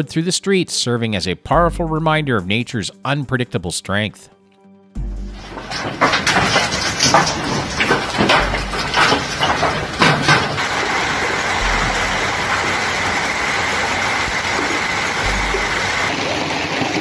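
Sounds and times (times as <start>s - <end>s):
hailstone knocks: 5.2s - 17.0s
hail pelting on water and paving: 5.4s - 17.0s.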